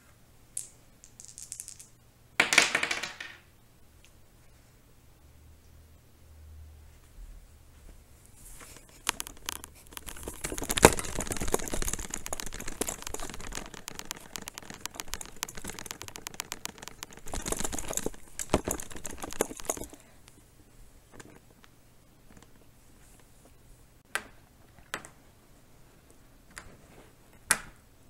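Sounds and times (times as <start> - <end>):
clicks: 8.7 - 20.4.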